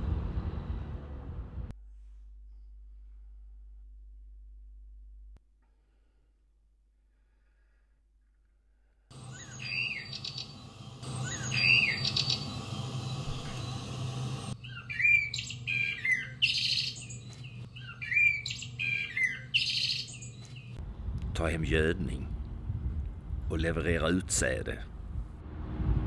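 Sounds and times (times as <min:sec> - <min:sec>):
small birds chirping: 0:09.1 - 0:20.8
low steady hum: 0:20.2 - 0:26.0.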